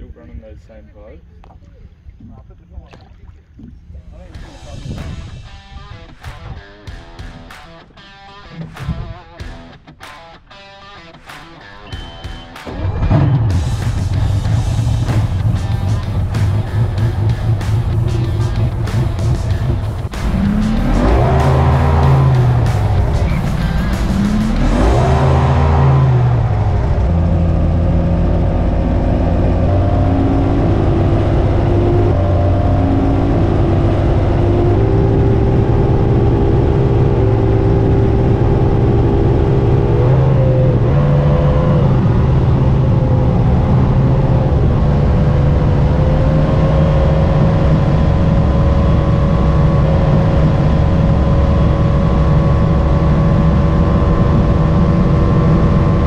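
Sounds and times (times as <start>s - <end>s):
water rushing against hull: 1.4s - 5.5s, 12.1s - 56.0s
outboard engine revving: 12.0s - 56.0s.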